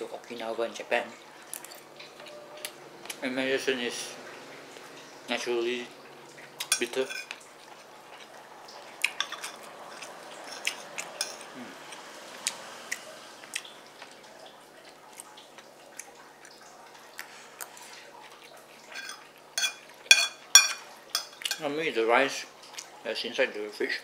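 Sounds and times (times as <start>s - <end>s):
metal spoon clinking on plate: 6.6s - 7.4s, 9.2s - 11.5s, 18.9s - 21.6s.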